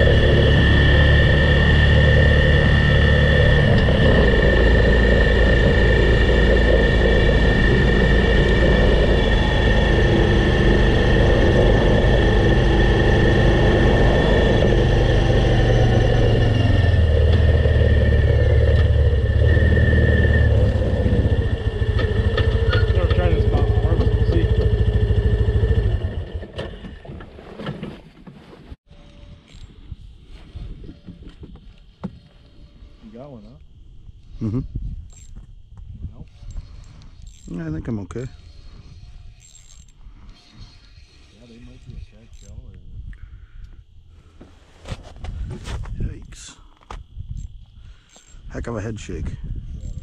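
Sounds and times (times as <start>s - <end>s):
high whine: 0.0s - 26.6s
snowmobile engine running: 0.0s - 27.1s.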